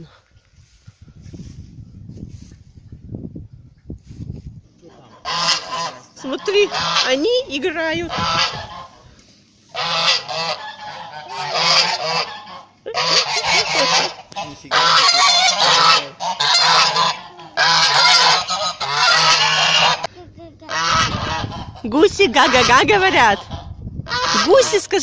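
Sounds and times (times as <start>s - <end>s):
geese honking: 5.0s - 9.0s, 9.7s - 20.1s, 20.7s - 24.8s.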